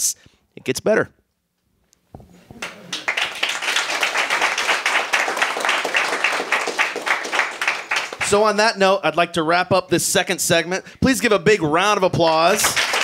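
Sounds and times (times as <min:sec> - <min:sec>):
audience applauding: 0:02.6 - 0:08.6, 0:12.5 - 0:13.0.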